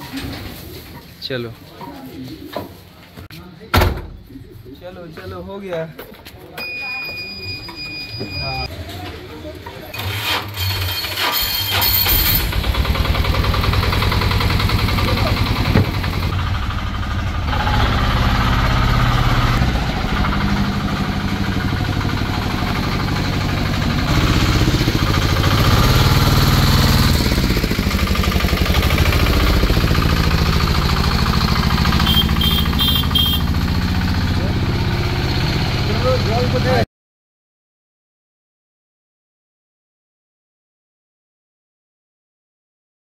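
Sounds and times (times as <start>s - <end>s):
truck engine running: 10.0s - 36.8s.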